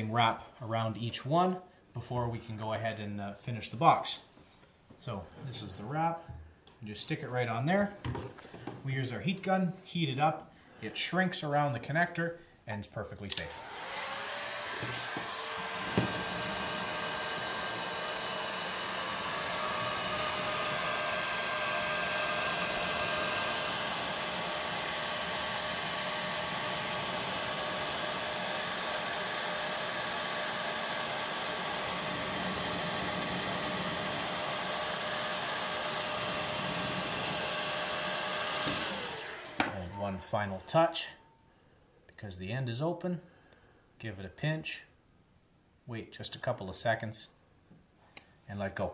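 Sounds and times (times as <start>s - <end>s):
heat gun fan whining: 13.3s - 41.4s.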